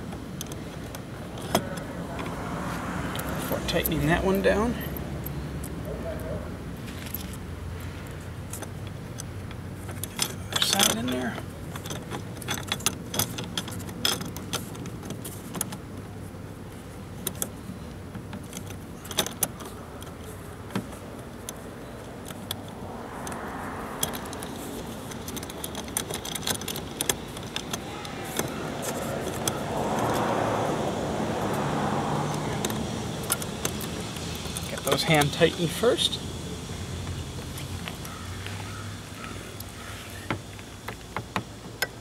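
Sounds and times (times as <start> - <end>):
metal bolts clicking and rattling: 0.0 - 2.4, 3.1 - 5.8, 8.1 - 16.1, 17.1 - 36.4
vehicle passing: 1.2 - 8.5, 21.7 - 40.3.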